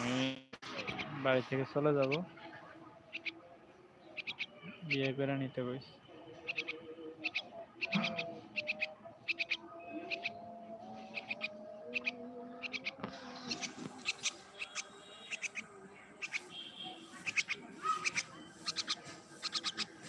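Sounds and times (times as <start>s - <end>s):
myna clicking chirps: 3.1s - 3.4s, 4.2s - 5.0s, 6.5s - 10.4s, 11.1s - 16.6s, 17.2s - 20.0s
bird whistle: 16.2s - 19.9s.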